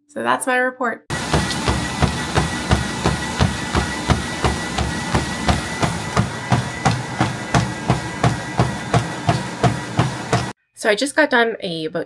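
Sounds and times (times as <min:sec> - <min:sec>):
running footsteps on treadmill: 0:01.1 - 0:10.6
treadmill high whine: 0:01.1 - 0:10.6.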